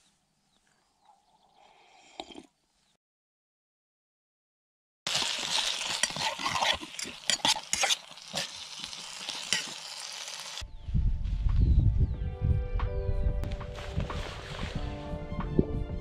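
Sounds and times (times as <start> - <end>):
fork scraping metal pot: 5.1 - 10.0.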